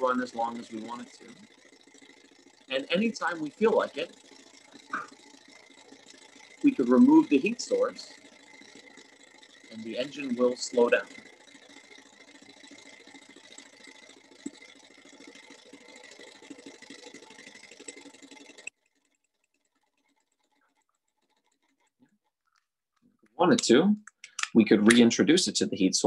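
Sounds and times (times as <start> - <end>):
model engine rattling tick: 0.0 - 26.0.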